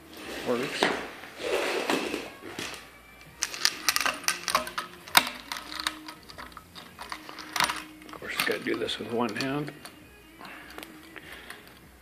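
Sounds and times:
metal parts clicking and clinking: 0:03.4 - 0:11.9.

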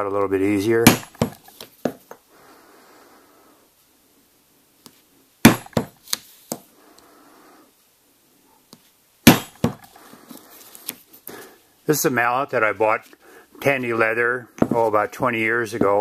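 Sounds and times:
mallet striking hole punch: 0:00.8 - 0:01.4, 0:05.5 - 0:06.0, 0:09.3 - 0:09.8.

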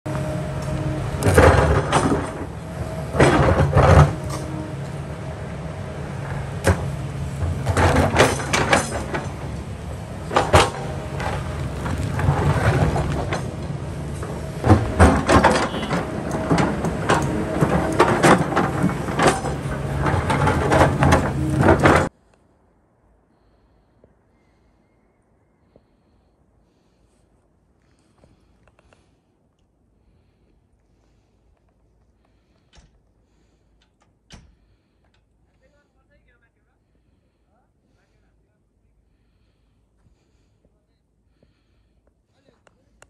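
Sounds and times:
excavator engine running: 0:00.0 - 0:22.2
bucket scraping against rocks: 0:00.1 - 0:22.1.

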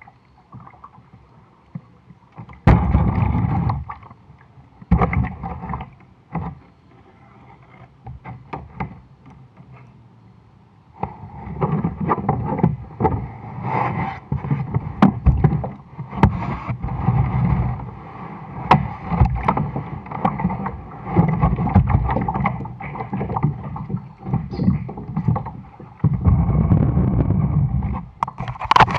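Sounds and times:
water sloshing against kayak hull: 0:00.0 - 0:10.0, 0:11.0 - 0:28.9
knocks on plastic hull: 0:02.4 - 0:03.8, 0:14.3 - 0:17.0, 0:18.7 - 0:27.9.

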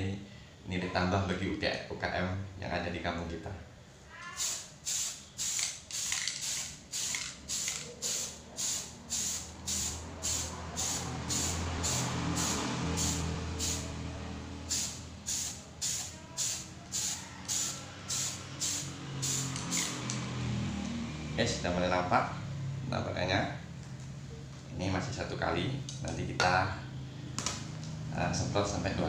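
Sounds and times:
spray paint can hissing: 0:04.4 - 0:13.9, 0:14.6 - 0:20.2.

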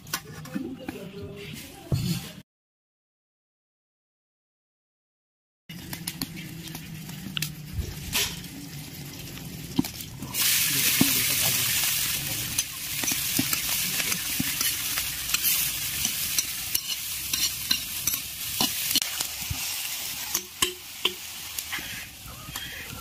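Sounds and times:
onions sizzling in hot oil: 0:05.7 - 0:23.0
metal spoon scraping wok: 0:10.3 - 0:22.0.

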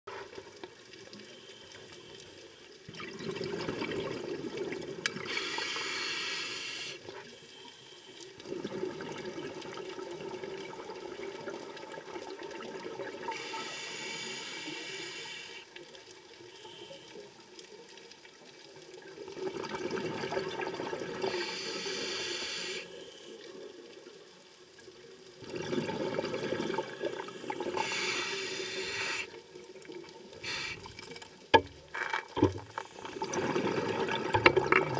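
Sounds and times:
exhaled bubbles rushing: 0:02.9 - 0:05.3, 0:25.4 - 0:27.8, 0:32.4 - 0:34.9
regulator inhale hiss: 0:05.3 - 0:08.2, 0:13.3 - 0:15.7, 0:16.5 - 0:17.3, 0:21.2 - 0:23.4, 0:27.2 - 0:29.4, 0:30.4 - 0:31.0.

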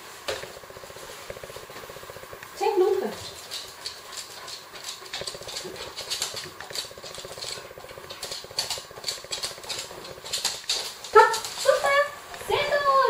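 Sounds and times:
claws ticking on wooden floor: 0:01.3 - 0:12.1
dog sniffing rapidly: 0:03.1 - 0:12.0.

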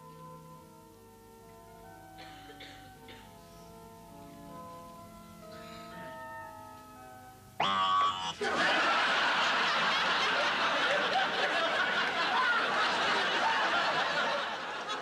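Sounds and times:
studio audience laughing: 0:08.1 - 0:15.0.

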